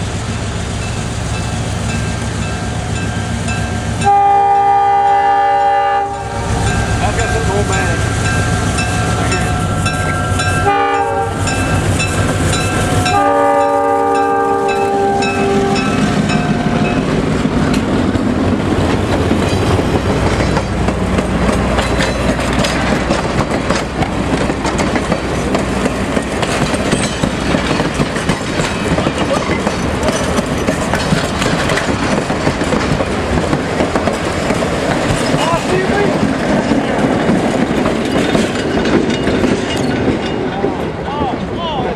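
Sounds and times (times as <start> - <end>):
locomotive air horn blasts: 4.0 - 6.6, 10.6 - 11.4, 13.0 - 16.0
train wheels clattering on rail joints: 6.5 - 41.6.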